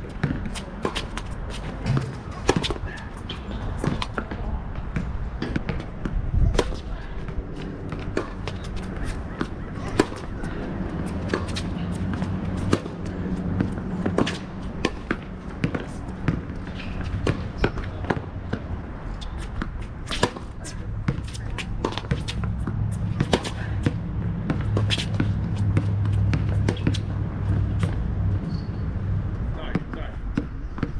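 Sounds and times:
tennis ball bouncing: 0:00.0 - 0:28.6
steady low rumble: 0:00.0 - 0:30.9
racket strings hitting tennis ball: 0:00.2 - 0:04.4, 0:07.9 - 0:10.4.

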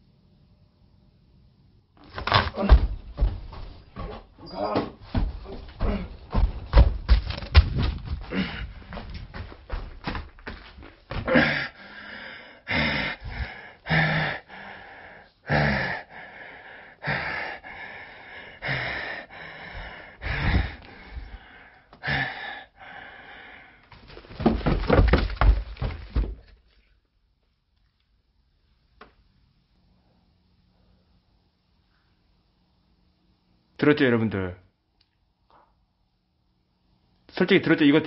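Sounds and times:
handling thumps and knocks: 0:02.1 - 0:08.3, 0:24.0 - 0:26.6
person breathing hard: 0:08.1 - 0:09.5, 0:11.1 - 0:24.2.

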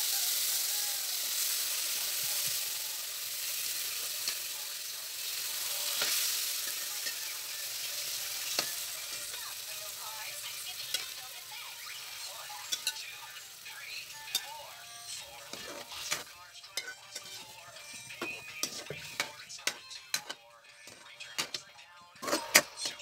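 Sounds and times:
meat sizzling in a wok: 0:00.0 - 0:21.0
metal spatula clicking on wok: 0:06.0 - 0:07.2, 0:12.7 - 0:13.0.

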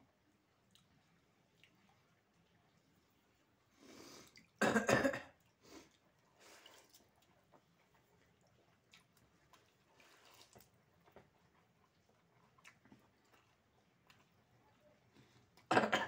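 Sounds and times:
chewing: 0:00.3 - 0:04.6, 0:05.3 - 0:15.7
hand scooping wet rice: 0:09.5 - 0:10.8.

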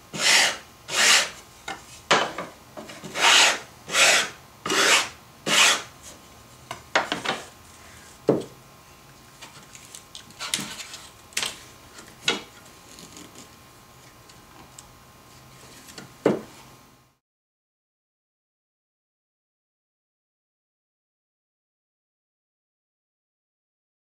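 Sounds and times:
sandpaper scratching wood: 0:00.1 - 0:01.4, 0:03.0 - 0:05.9.

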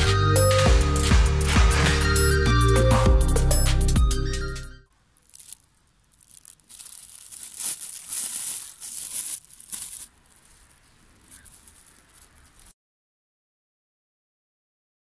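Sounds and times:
plastic bag crinkling: 0:04.9 - 0:12.7.

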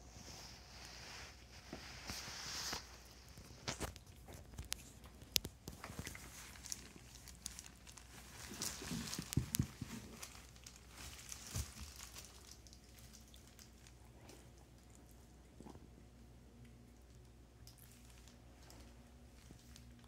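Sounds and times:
soft crinkling and rustling: 0:00.0 - 0:20.0
small clicks and taps: 0:03.7 - 0:06.3.

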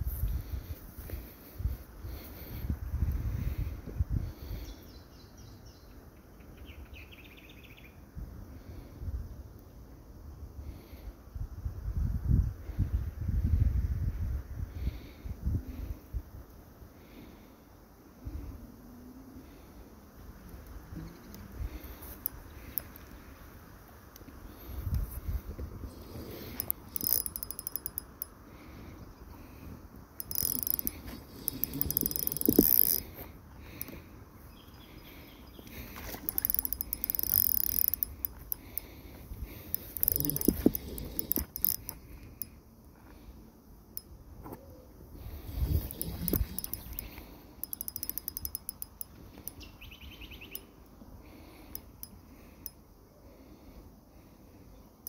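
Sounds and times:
fishing reel clicking: 0:22.0 - 0:23.0, 0:26.4 - 0:28.4, 0:30.2 - 0:33.1, 0:36.0 - 0:38.9, 0:39.7 - 0:42.0, 0:45.5 - 0:49.6
fishing reel buzzing: 0:26.0 - 0:28.3, 0:30.2 - 0:33.2, 0:36.0 - 0:39.0, 0:39.6 - 0:42.0, 0:45.3 - 0:49.6.

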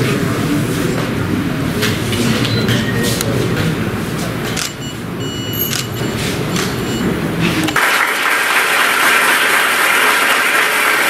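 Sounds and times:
audience applauding: 0:06.6 - 0:11.0.

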